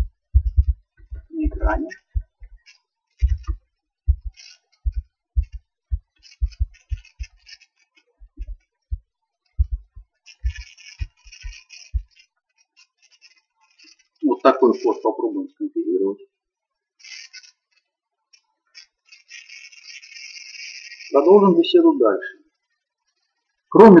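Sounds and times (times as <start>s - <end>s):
keyboard typing: 0.0s - 2.6s, 3.2s - 8.6s, 9.6s - 12.2s.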